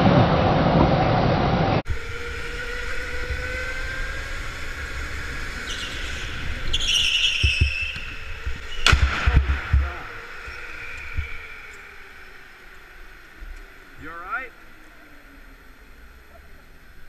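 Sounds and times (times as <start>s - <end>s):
electric go-kart motor whining: 1.9s - 17.0s
karts crashing: 2.0s - 13.9s
tyres squealing: 4.4s - 9.0s.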